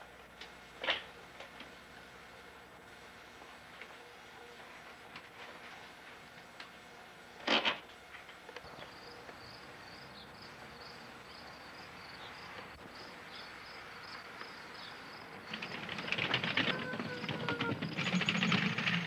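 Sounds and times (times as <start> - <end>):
insect chirping: 8.7 - 18.1
clicking and rattling: 15.4 - 19.0.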